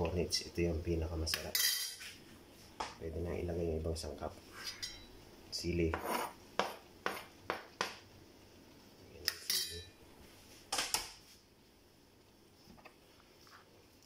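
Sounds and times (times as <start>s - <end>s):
scraping into pot: 5.9s - 7.2s.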